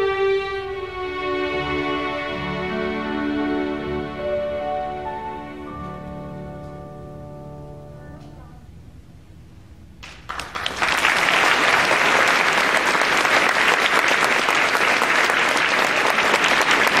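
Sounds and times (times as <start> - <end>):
audience applause: 10.0 - 17.0.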